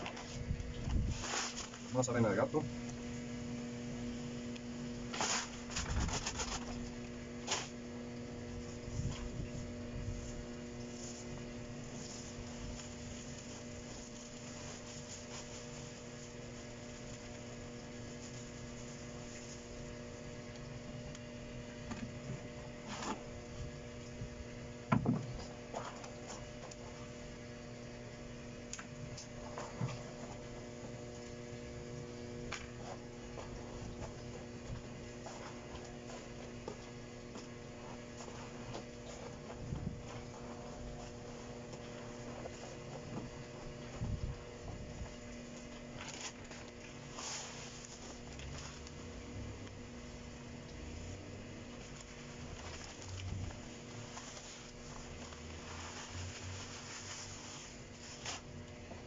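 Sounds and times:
electrical hum: 0:00.0 - 0:59.0
cat litter pouring into plastic tub: 0:05.1 - 0:06.8, 0:46.0 - 0:49.0, 0:51.8 - 0:58.5.

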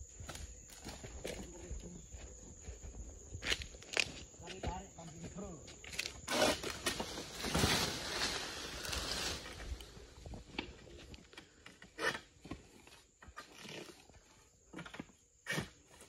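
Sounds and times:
palm fronds rustling: 0:06.0 - 0:11.0.

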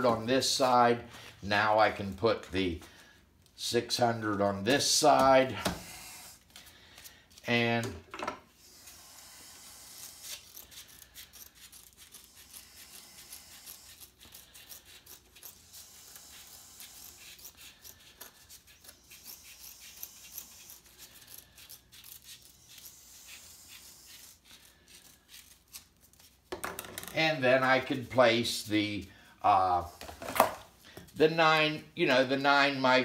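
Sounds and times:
scissors snipping paper: 0:10.0 - 0:26.5.

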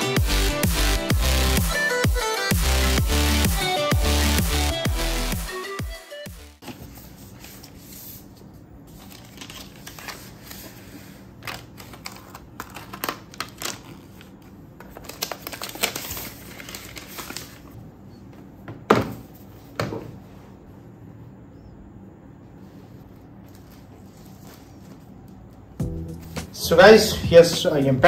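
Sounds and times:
paper wrap rustling: 0:06.6 - 0:17.8, 0:22.6 - 0:26.7.

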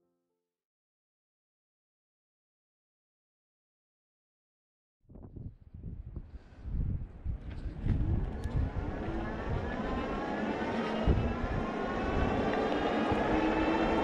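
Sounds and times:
wind buffeting microphone: 0:05.1 - 0:14.0.

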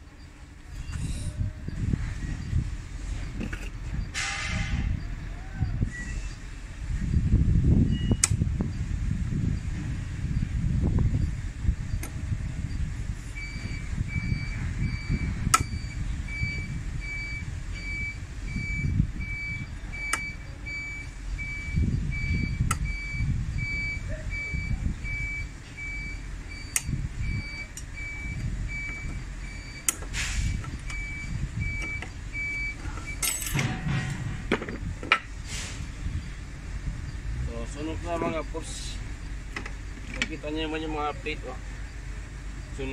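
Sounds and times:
reversing alarm beeping: 0:00.0 - 0:08.9, 0:09.5 - 0:34.1
low rumble: 0:00.6 - 0:40.1.

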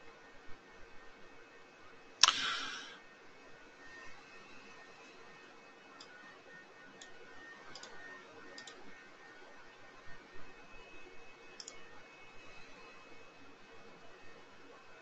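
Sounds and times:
faint background hum: 0:00.0 - 0:15.0
computer mouse clicking: 0:02.2 - 0:02.9, 0:07.0 - 0:08.8, 0:11.6 - 0:11.8.

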